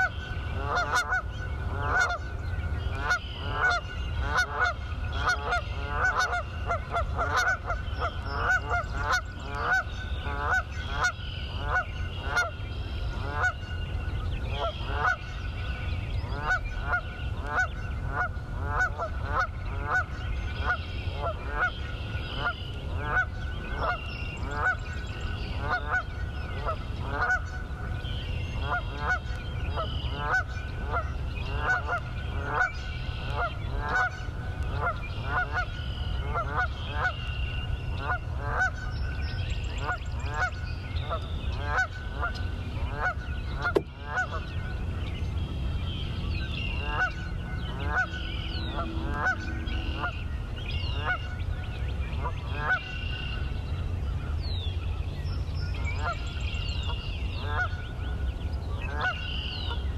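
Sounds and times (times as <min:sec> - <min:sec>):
geese honking: 0:00.0 - 0:02.2, 0:03.0 - 0:12.5, 0:13.2 - 0:13.6, 0:14.6 - 0:15.2, 0:16.3 - 0:24.8, 0:25.6 - 0:27.6, 0:28.6 - 0:37.2, 0:38.0 - 0:38.9, 0:41.6 - 0:44.5, 0:46.8 - 0:51.4, 0:52.4 - 0:53.4, 0:58.9 - 0:59.5
low steady rumble: 0:38.8 - 0:58.8.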